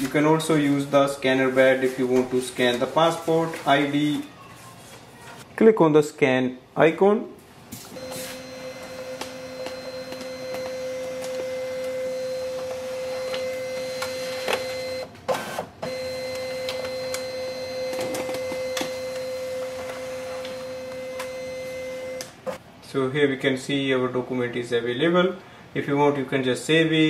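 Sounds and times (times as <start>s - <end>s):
document feeder motor whine: 8.0s - 22.4s.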